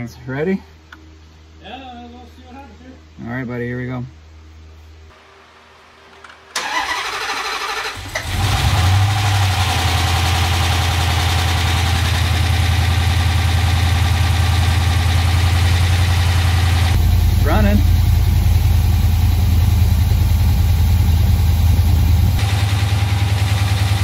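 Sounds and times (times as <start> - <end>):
starter motor cranking: 6.6 - 10.3
car engine idling: 6.6 - 24.0.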